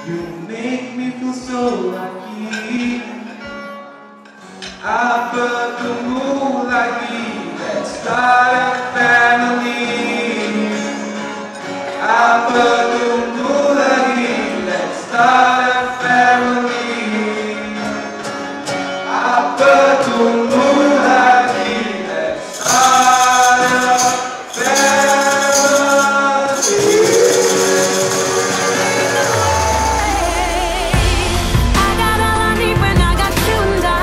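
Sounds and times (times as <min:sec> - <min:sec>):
man singing: 0:00.0 - 0:03.8, 0:04.6 - 0:18.3, 0:19.0 - 0:34.0
acoustic guitar: 0:00.0 - 0:34.0
backing singers harmonising: 0:04.4 - 0:34.0
tambourine shaken: 0:22.4 - 0:30.1.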